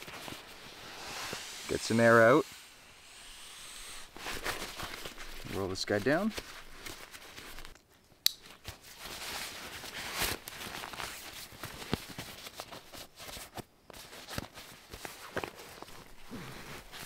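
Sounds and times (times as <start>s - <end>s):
fabric rustling and swishing: 0.0s - 7.7s.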